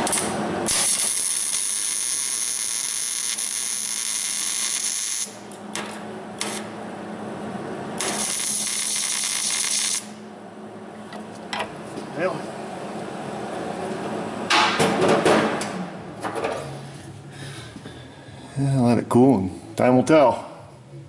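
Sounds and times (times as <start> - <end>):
welder arc sizzling and buzzing: 0.0 - 11.4.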